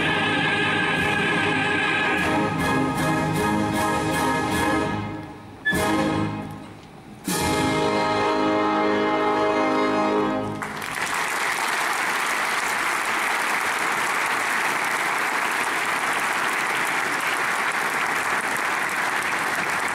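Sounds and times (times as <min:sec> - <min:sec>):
orchestra holding a chord: 0:07.3 - 0:10.6
audience applause: 0:10.6 - 0:19.9.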